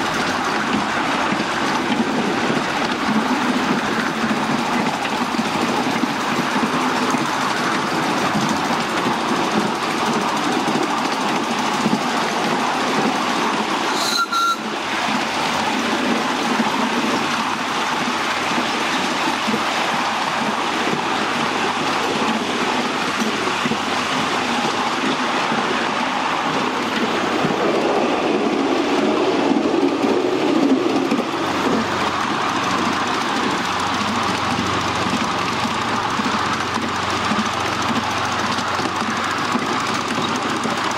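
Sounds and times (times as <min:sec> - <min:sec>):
miniature train wheels clattering: 0:00.0 - 0:40.9
brief high squeak: 0:13.9 - 0:14.6.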